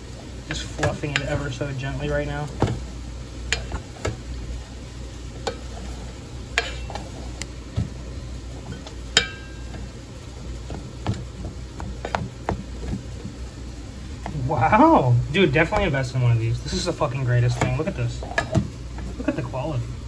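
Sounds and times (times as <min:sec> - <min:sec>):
steady low hum: 0:00.0 - 0:20.0
paddle stirring rice: 0:00.1 - 0:19.7
paddle tapping pot: 0:00.5 - 0:04.4, 0:05.3 - 0:13.6, 0:16.7 - 0:19.4.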